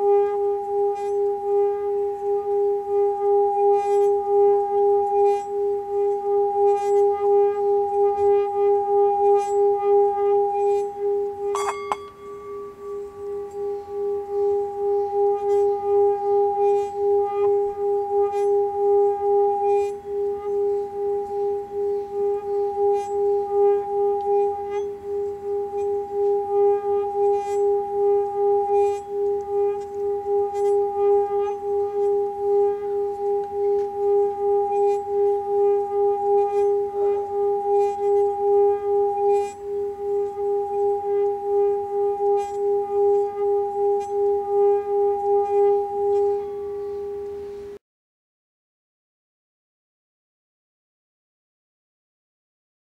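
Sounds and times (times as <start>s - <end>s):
singing bowl humming: 0.0s - 47.8s
mallet clacking on bowl rim: 11.5s - 12.2s.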